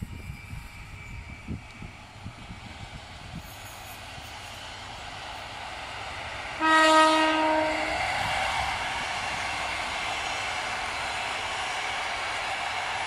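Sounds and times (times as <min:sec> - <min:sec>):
electric locomotive running: 0:00.0 - 0:13.0
train horn: 0:06.6 - 0:08.0.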